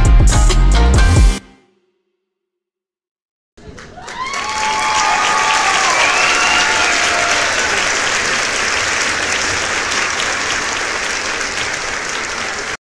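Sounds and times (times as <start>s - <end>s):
music: 0.0s - 2.3s
crowd applause: 3.6s - 12.8s.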